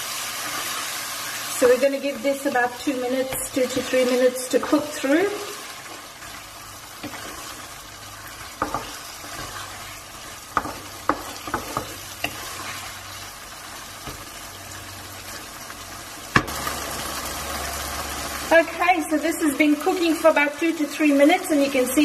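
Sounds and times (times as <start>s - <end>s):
curry sizzling in a wok: 0.0s - 22.0s
wooden spatula scraping: 3.1s - 13.2s.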